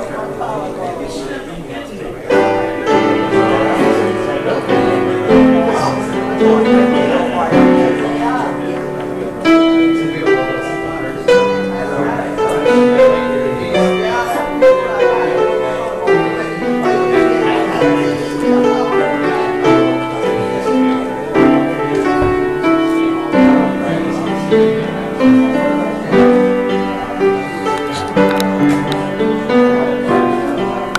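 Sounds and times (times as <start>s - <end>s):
keyboard playing slow chords: 2.2s - 30.9s.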